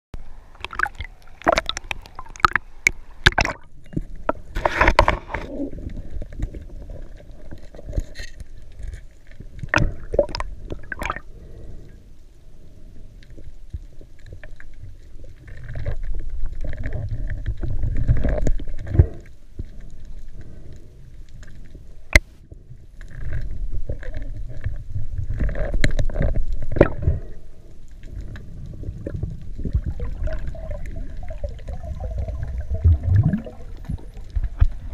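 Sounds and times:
muffled underwater rushing: 0.2s - 7.8s, 9.4s - 11.8s, 28.0s - 34.9s.

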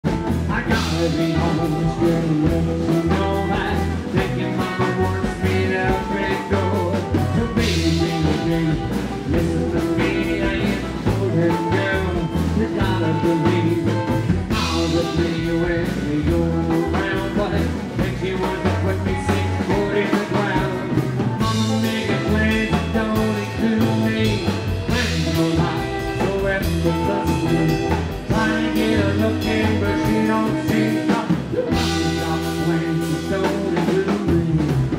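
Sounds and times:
acoustic guitar: 0.0s - 34.9s
drum kit beat: 0.0s - 34.9s
electric guitar: 0.0s - 34.9s
upright double bass: 0.0s - 34.9s.

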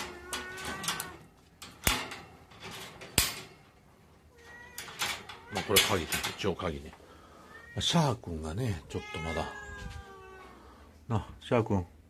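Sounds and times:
cat meowing: 0.0s - 1.3s, 4.3s - 5.8s, 7.4s - 8.0s, 8.7s - 10.7s
cage door latch clicking: 0.0s - 3.6s.

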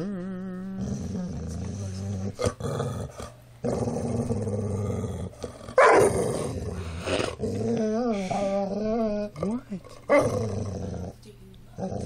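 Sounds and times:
dog growling and moaning: 0.0s - 12.0s.

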